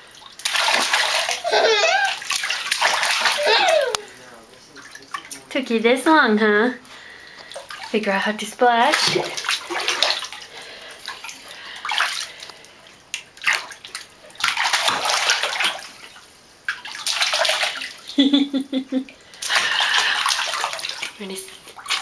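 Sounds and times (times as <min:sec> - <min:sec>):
baby splashing bathwater: 0:00.0 - 0:22.0
baby giggling: 0:01.2 - 0:02.3, 0:03.1 - 0:04.2.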